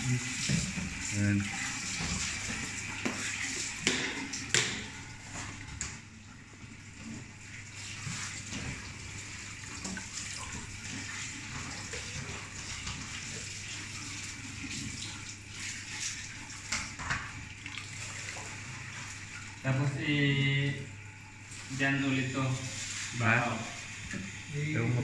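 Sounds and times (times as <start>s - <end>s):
running water: 0.0s - 25.0s.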